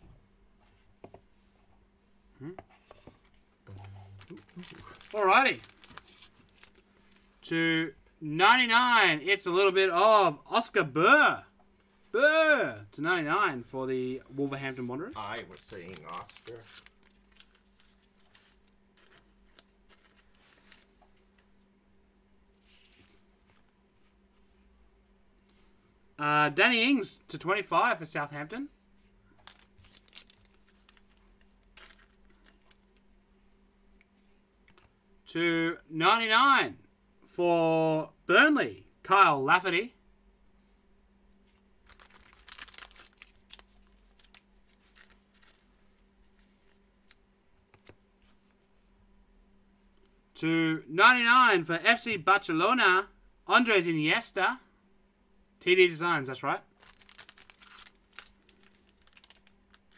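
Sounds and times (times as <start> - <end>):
steady low hum: 0.0 - 8.3
trading cards rustling and clicking: 2.9 - 7.4, 14.9 - 21.5, 29.4 - 33.1, 41.5 - 45.8, 46.5 - 48.6, 56.8 - 59.9.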